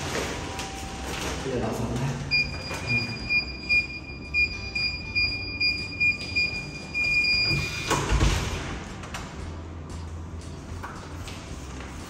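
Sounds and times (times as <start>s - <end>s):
keypad beeps: 2.3s - 7.8s.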